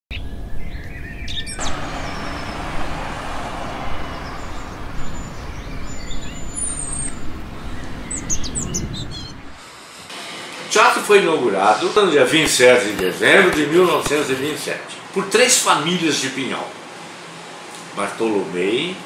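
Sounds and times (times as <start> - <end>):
birds chirping: 0.1 - 9.6
traffic noise: 1.5 - 10.1, 12.3 - 14.7.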